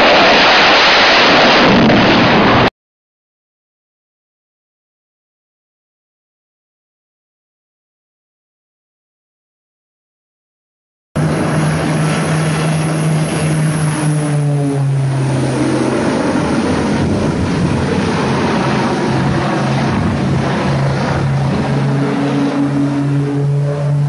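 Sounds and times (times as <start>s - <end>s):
propeller airplane flying past: 11.2s - 24.0s.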